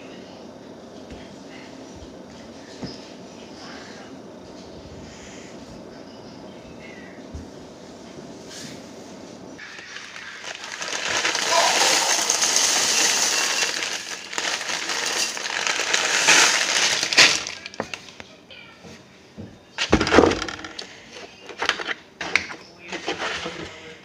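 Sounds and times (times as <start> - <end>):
dry food rattling into a bowl: 9.6 - 18.2
plastic bag crinkling: 9.6 - 18.2.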